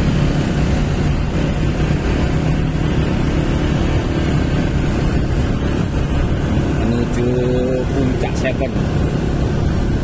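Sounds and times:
motorcycle engines running: 0.0 - 10.0
wind rumbling on microphone: 0.0 - 10.0.

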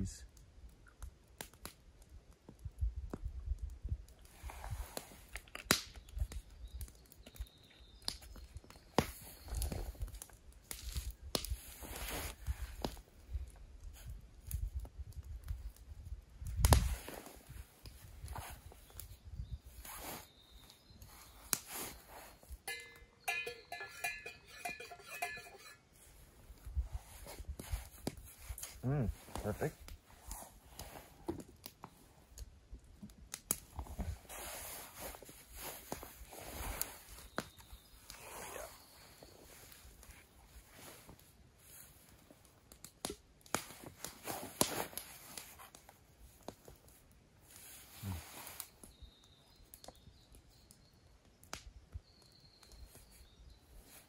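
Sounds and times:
metallic clinking and ringing: 22.6 - 26.0.

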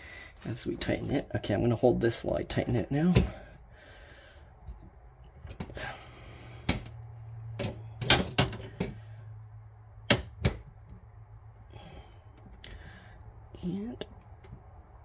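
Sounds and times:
metallic knocks and clinks: 7.5 - 9.0.

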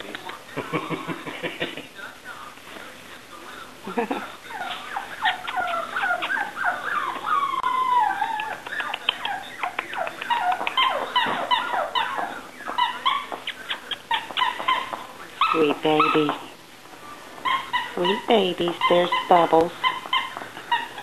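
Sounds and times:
puppies whimpering and yipping: 4.5 - 16.4, 17.4 - 21.0.

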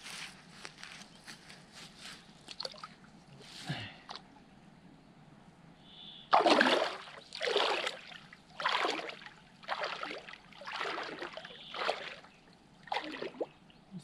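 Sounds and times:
person splashing in water: 6.3 - 13.5.

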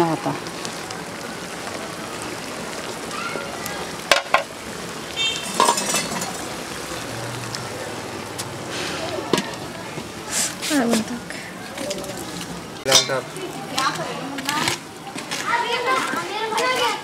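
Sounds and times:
pot sizzling over fire: 0.0 - 17.0
clatter of pots: 4.1 - 4.5, 5.4 - 6.5, 12.9 - 13.3.

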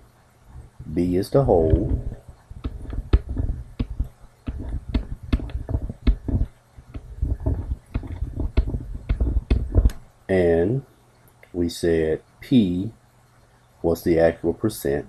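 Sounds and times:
stylus tapping and scraping: 1.5 - 10.1.

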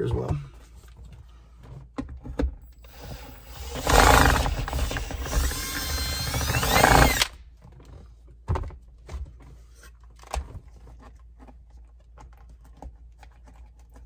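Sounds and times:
power drill running: 2.6 - 7.4.

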